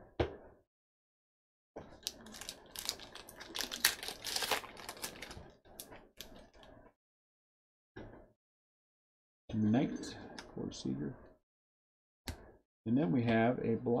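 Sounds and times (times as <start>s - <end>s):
foil wrapper tearing and crinkling: 2.0s - 5.4s.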